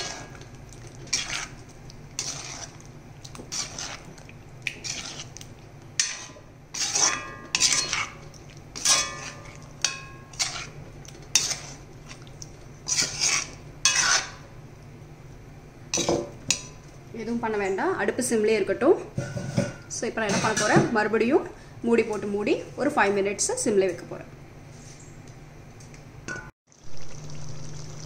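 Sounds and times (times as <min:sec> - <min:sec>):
low steady hum: 0:00.0 - 0:28.0
metal spatula scraping iron pan: 0:02.2 - 0:02.8, 0:03.5 - 0:04.0, 0:04.8 - 0:05.3, 0:06.0 - 0:08.2, 0:08.8 - 0:11.8, 0:12.8 - 0:14.4.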